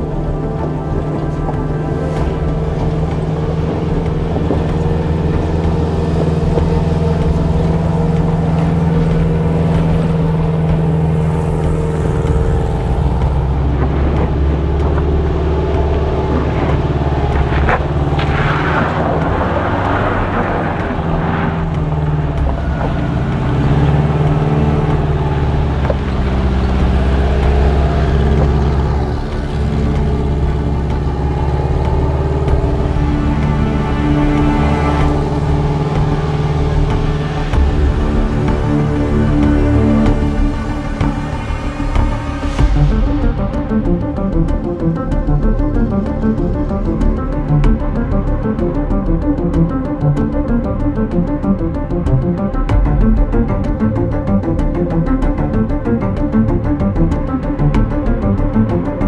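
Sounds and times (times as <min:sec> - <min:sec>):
tyres on gravel and rock: 0:00.0 - 0:50.9
van engine running: 0:00.0 - 0:59.0.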